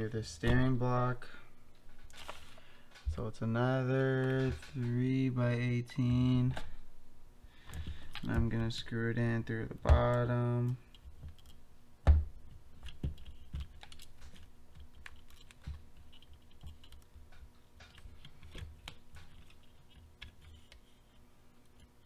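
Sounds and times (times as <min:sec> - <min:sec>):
plastic parts clicking and tapping: 0:07.6 - 0:08.8, 0:12.8 - 0:20.8.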